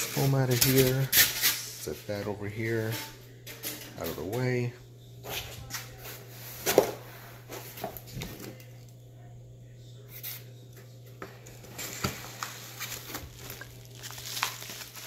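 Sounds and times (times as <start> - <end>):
steady low hum: 0.0 - 15.0
cardboard and packing rustling: 11.6 - 15.0.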